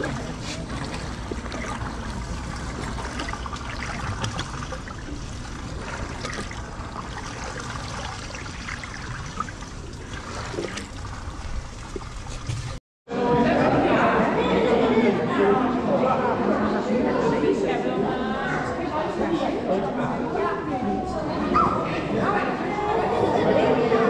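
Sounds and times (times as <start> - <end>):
water trickling: 0.0 - 12.8.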